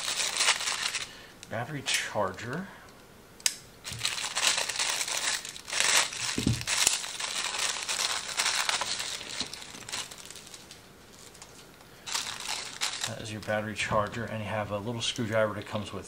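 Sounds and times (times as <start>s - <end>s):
plastic bag crinkling: 0.0s - 1.2s, 3.8s - 14.4s.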